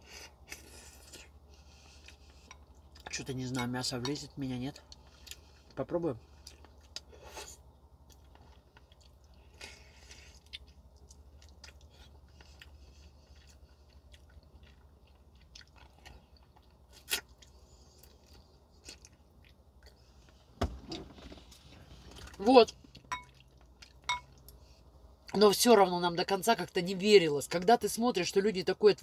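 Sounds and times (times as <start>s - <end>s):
person chewing: 0.1s - 3.1s, 4.8s - 20.4s, 22.0s - 24.8s.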